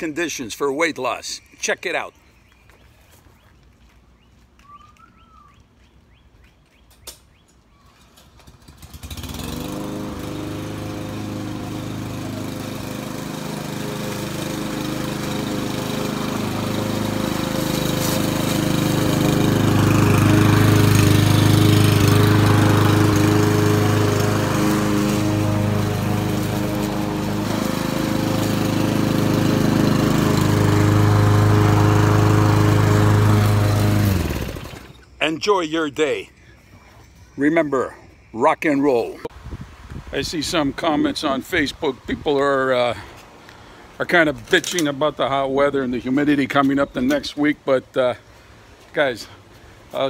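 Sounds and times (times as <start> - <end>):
lawn mower engine running: 8.2 - 35.1.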